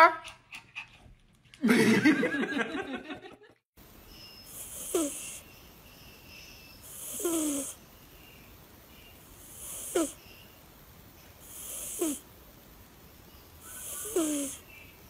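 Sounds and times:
cat snoring: 0:04.5 - 0:05.4, 0:06.8 - 0:07.8, 0:09.2 - 0:10.2, 0:11.4 - 0:12.3, 0:13.6 - 0:14.6.

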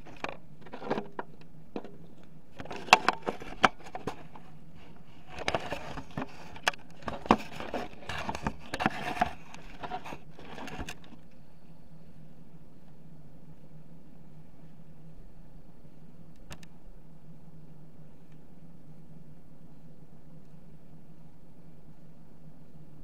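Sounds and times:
gun handling clicks and knocks: 0:00.0 - 0:04.5
steady low hum: 0:00.0 - 0:23.0.

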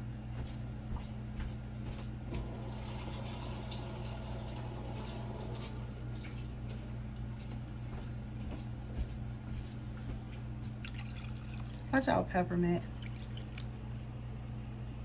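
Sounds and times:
steady low hum: 0:00.0 - 0:15.0
water pouring into a dish: 0:02.6 - 0:06.4, 0:10.8 - 0:12.1, 0:12.8 - 0:14.0.

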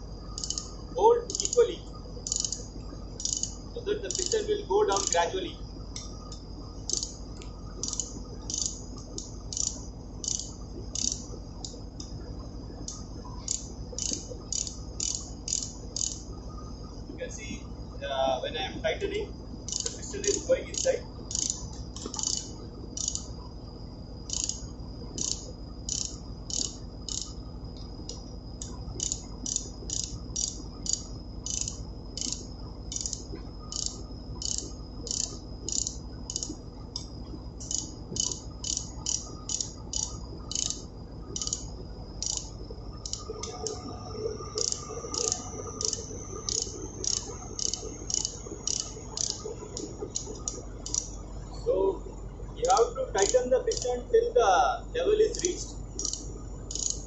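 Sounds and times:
ratchet spanner clicking: 0:00.4 - 0:01.6, 0:02.2 - 0:04.4, 0:05.0 - 0:05.2, 0:06.3 - 0:07.2, 0:07.8 - 0:12.1, 0:12.8 - 0:16.2, 0:19.7 - 0:23.3, 0:24.3 - 0:27.4, 0:28.0 - 0:43.3, 0:44.6 - 0:51.1, 0:52.6 - 0:53.9, 0:56.0 - 0:57.0.

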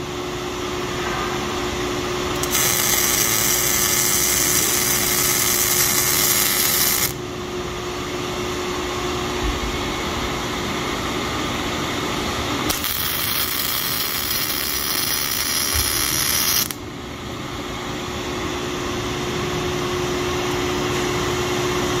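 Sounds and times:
steady hum: 0:00.0 - 0:22.0
welding arc sizzling: 0:02.3 - 0:07.2, 0:12.7 - 0:16.8.

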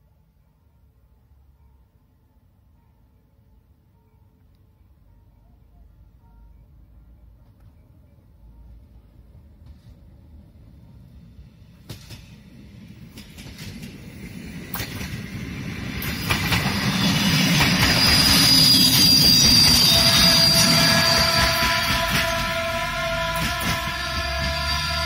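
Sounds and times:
diesel railcar rumble: 0:00.0 - 0:25.0
wheels clicking over rail joints: 0:11.8 - 0:22.6
high wheel squeal: 0:16.0 - 0:25.0.

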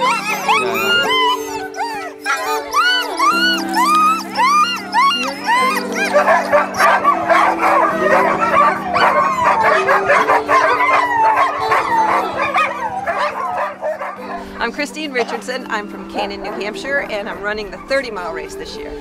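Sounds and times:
dogs whining yelping and barking: 0:00.0 - 0:19.0
music with long held notes: 0:00.0 - 0:19.0.

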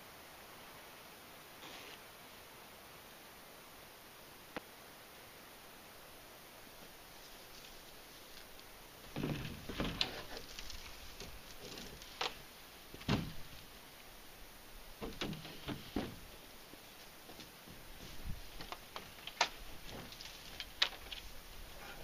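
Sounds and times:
canoe hull knocking and scraping: 0:09.1 - 0:12.4.

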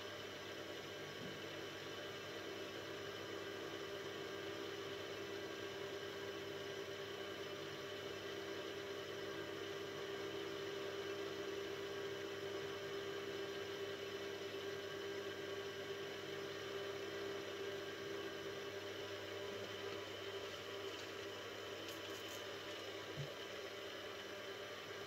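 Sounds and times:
milling machine motor humming: 0:16.5 - 0:24.6.

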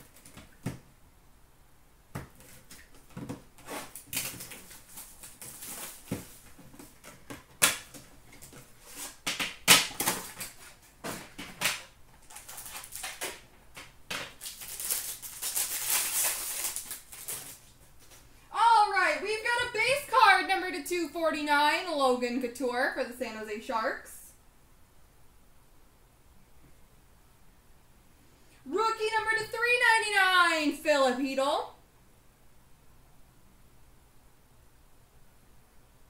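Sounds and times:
wrapper crinkling and tearing: 0:03.6 - 0:06.9, 0:07.8 - 0:13.5, 0:14.3 - 0:18.2.

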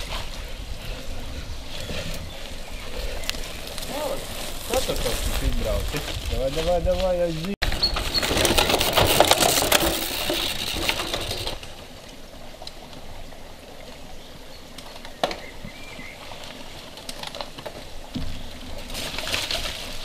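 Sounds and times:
bike tyres crackling on dirt: 0:00.0 - 0:20.0.

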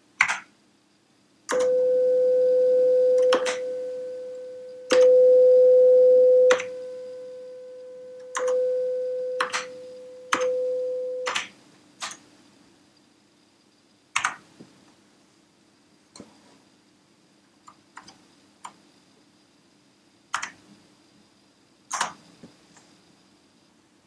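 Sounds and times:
steady sine tone: 0:01.5 - 0:11.4.

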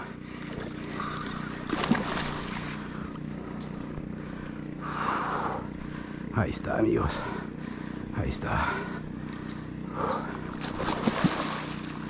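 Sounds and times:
low motor hum: 0:00.0 - 0:12.0
fish splashing at water surface: 0:01.7 - 0:02.8, 0:10.6 - 0:12.0.

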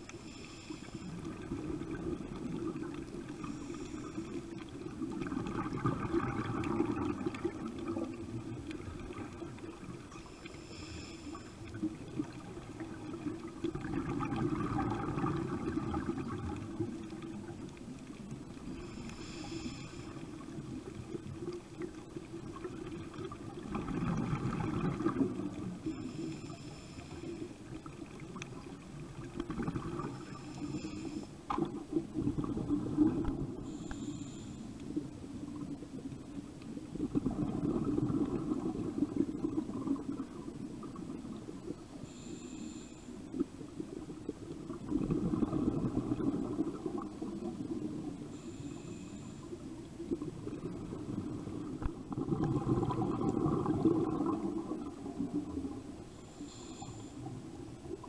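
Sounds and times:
regulator inhale hiss: 0:00.0 - 0:01.7, 0:02.8 - 0:04.8, 0:09.6 - 0:12.3, 0:18.2 - 0:21.8, 0:25.7 - 0:28.0, 0:30.0 - 0:31.6, 0:33.3 - 0:35.0, 0:41.9 - 0:44.0, 0:48.2 - 0:49.8, 0:56.1 - 0:57.7
gurgling exhaled bubbles: 0:01.1 - 0:10.2, 0:11.6 - 0:34.2, 0:34.9 - 0:42.4, 0:43.2 - 0:58.0.

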